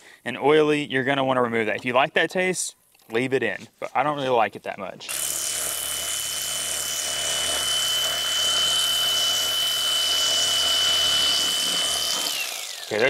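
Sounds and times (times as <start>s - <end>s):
electric knife whining: 5.1s - 13.0s.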